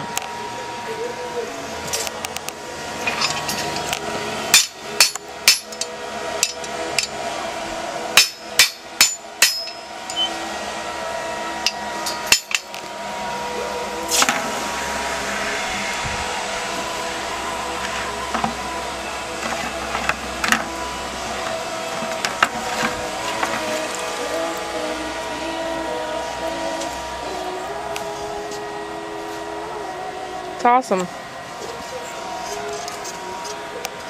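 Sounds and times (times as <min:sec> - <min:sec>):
steady machine hum: 0:00.0 - 0:34.0
hammer striking steel on anvil: 0:04.5 - 0:07.2, 0:08.2 - 0:10.3, 0:11.6 - 0:12.8.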